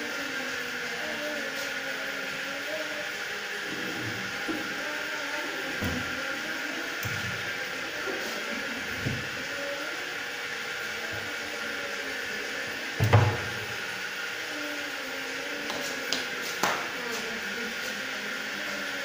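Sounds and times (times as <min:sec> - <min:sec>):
cabinet door knocking shut: 0:13.0 - 0:13.5.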